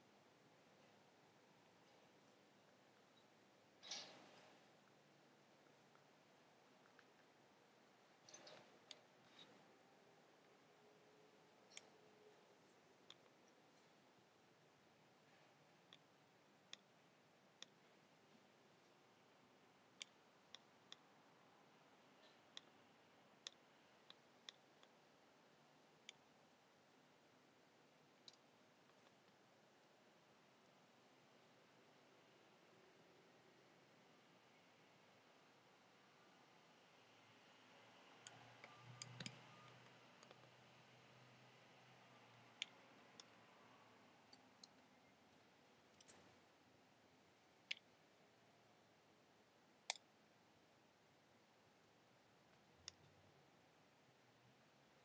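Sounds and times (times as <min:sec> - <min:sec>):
low background hiss: 0:00.0 - 0:55.0.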